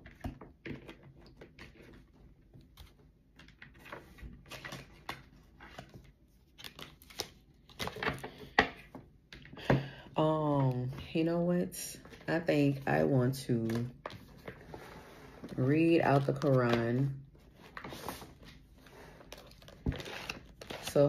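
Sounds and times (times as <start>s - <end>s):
cards being shuffled: 3.8s - 8.3s, 19.2s - 21.0s.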